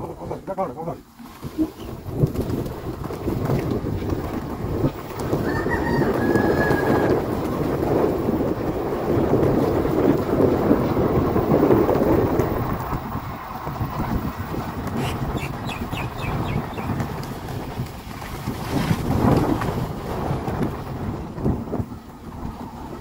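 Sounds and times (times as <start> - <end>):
steady rumbling noise: 0.0 - 23.0
rooster crowing: 5.3 - 7.2.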